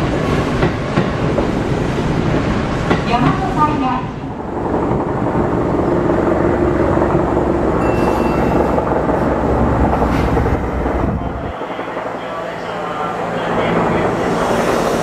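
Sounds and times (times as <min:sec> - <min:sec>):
train rumbling on rails: 0:00.0 - 0:15.0
thin high squeal: 0:07.8 - 0:08.8.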